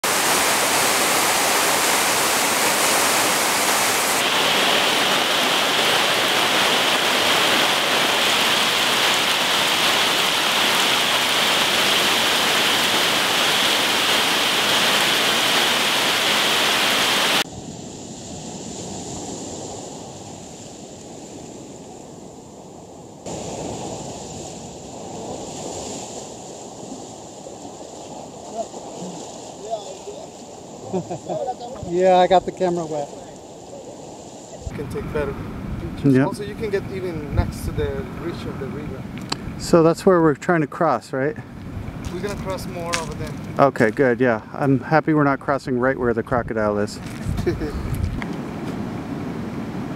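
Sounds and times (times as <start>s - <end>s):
heavy rain on foliage: 0.0s - 17.5s, 28.5s - 34.1s, 42.0s - 43.4s
rushing river water: 0.0s - 20.6s, 23.2s - 39.9s.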